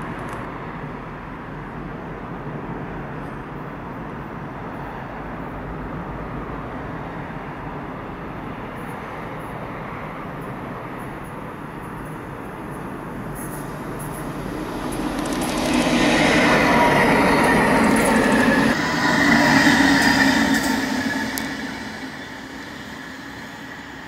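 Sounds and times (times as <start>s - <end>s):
distant locomotive rumble: 10.2s - 24.0s.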